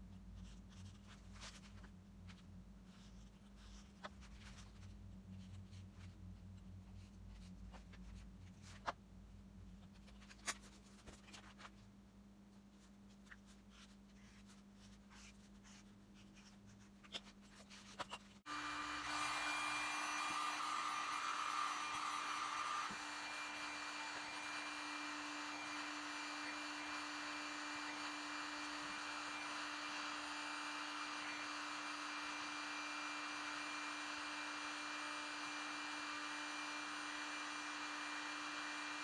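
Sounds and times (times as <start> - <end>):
handling foam sheets and paper: 9.8 - 12.0
heat gun blowing with a hum: 18.5 - 39.0.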